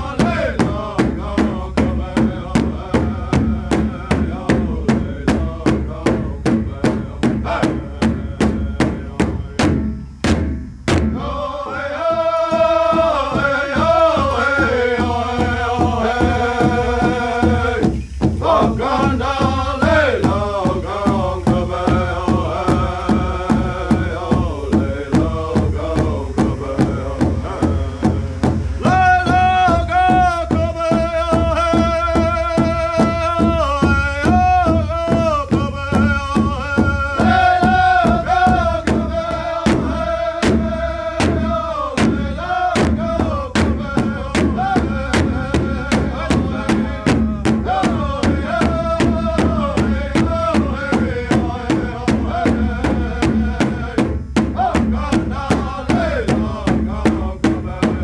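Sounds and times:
group singing in unison: 0:00.0 - 0:58.0
large drum steady beat: 0:00.0 - 0:58.0.

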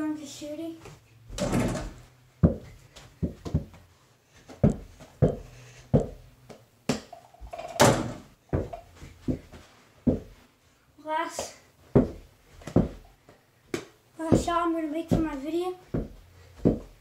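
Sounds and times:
ball bouncing on floor: 0:02.4 - 0:03.8, 0:04.6 - 0:07.6, 0:08.5 - 0:09.5, 0:11.9 - 0:13.1, 0:13.7 - 0:16.9.

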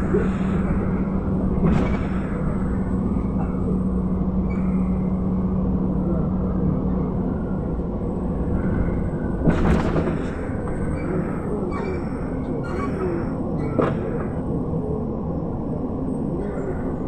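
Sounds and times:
bus engine hum: 0:00.0 - 0:17.0
road rumble: 0:00.0 - 0:17.0.

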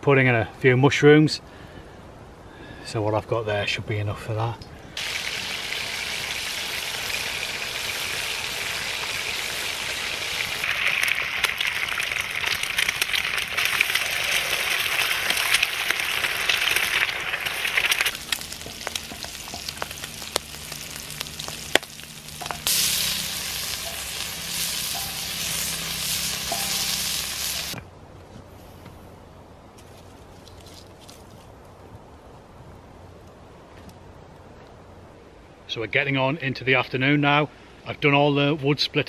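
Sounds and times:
food sizzling on a griddle: 0:05.0 - 0:27.8.

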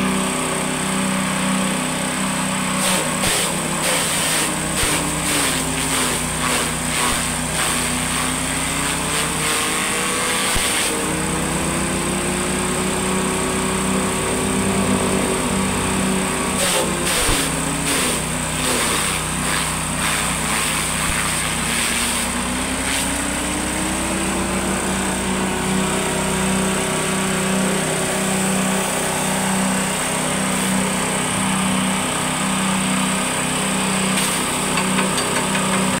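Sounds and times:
small engine running: 0:00.0 - 0:36.0
stalks being chopped: 0:02.8 - 0:11.0, 0:16.6 - 0:23.2.

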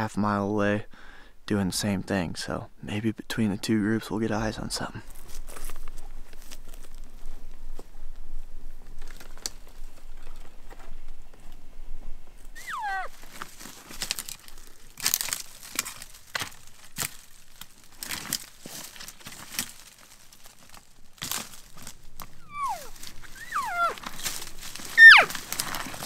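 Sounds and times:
rustling and handling crackle: 0:05.0 - 0:11.6, 0:12.3 - 0:26.0
elk whistled calls: 0:12.6 - 0:13.1, 0:22.4 - 0:24.0, 0:25.0 - 0:25.4.

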